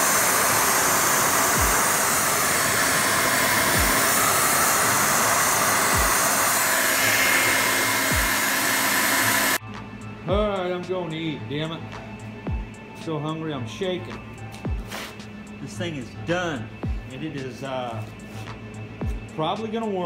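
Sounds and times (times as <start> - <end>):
rush of air from blower: 0.0 - 9.6.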